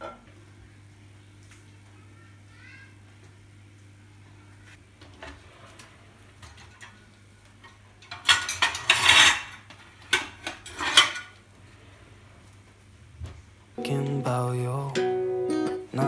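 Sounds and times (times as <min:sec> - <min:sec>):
ceramic plates clattering on rack: 0:08.1 - 0:11.3.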